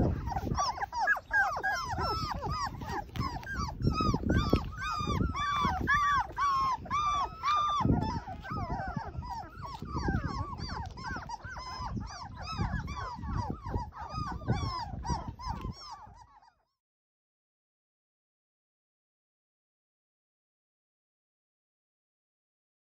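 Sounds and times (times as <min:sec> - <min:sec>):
puppies whimpering and crying: 0:00.0 - 0:16.8.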